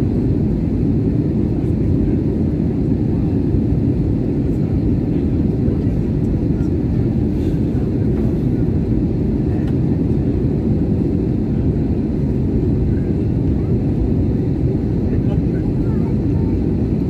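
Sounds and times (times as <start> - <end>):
jet engine rumble in cabin: 0.0 - 17.0.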